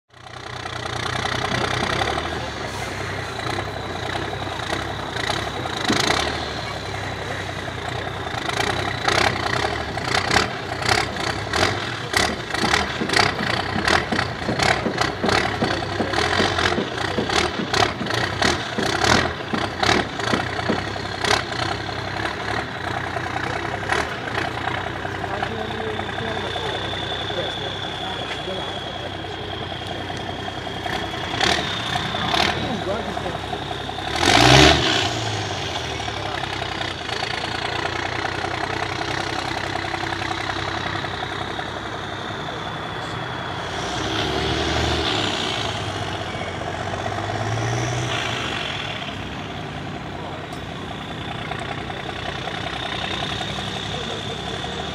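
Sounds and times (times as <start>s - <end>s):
diesel truck engine under load: 0.1s - 54.9s
sharp knocks and cracks: 12.2s - 21.4s.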